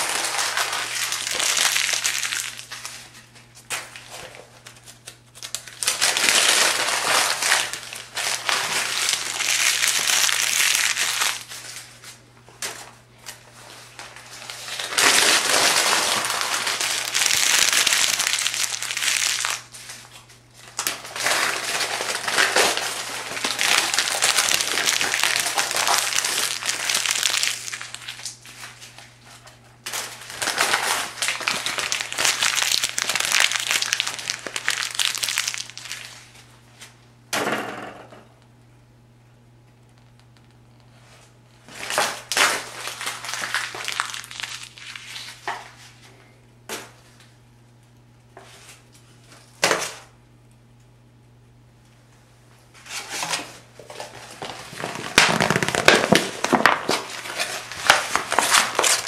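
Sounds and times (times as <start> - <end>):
paper pages crumpling: 0.0 - 12.8, 13.5 - 36.4, 41.7 - 46.0, 54.0 - 59.0.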